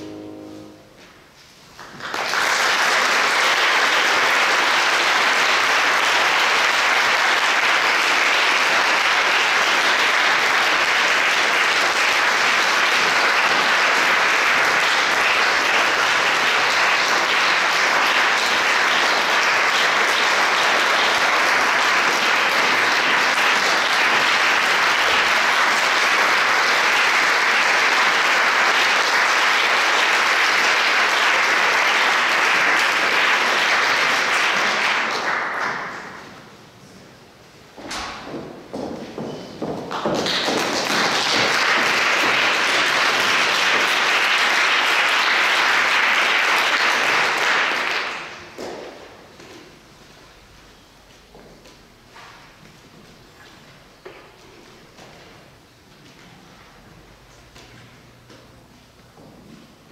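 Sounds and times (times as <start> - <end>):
audience applause: 1.8 - 36.4, 39.8 - 49.0.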